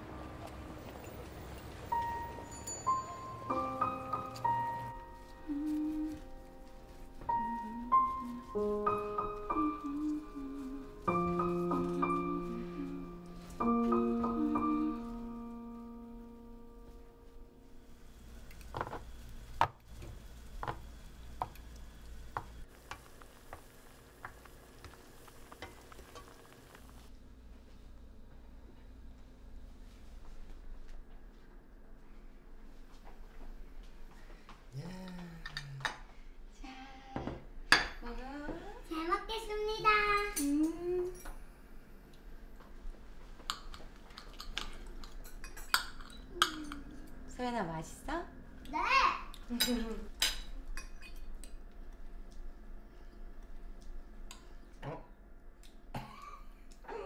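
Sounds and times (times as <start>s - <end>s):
faint sizzle: 1.5s - 30.6s.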